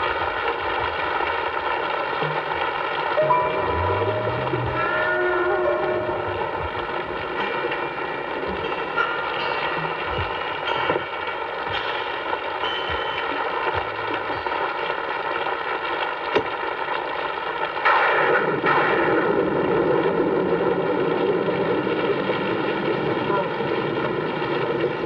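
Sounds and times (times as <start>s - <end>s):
rain hissing: 0.0s - 25.0s
gunshots: 17.8s - 20.5s.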